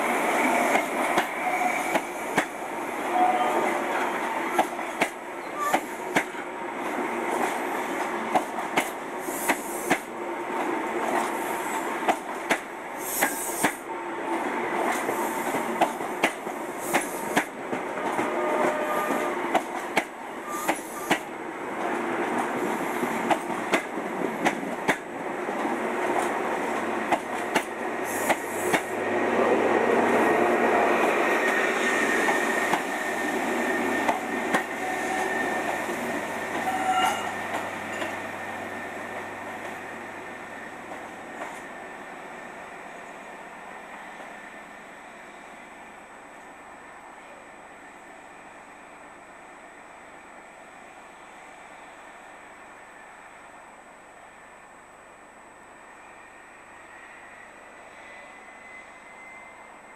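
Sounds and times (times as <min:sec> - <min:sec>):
train wheels clicking over rail joints: 0:19.5 - 0:28.9.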